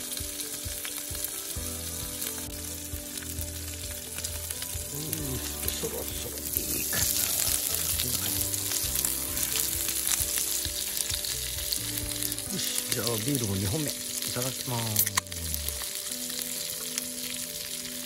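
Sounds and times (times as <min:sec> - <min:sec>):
meat sizzling in a pan: 0:00.0 - 0:18.0.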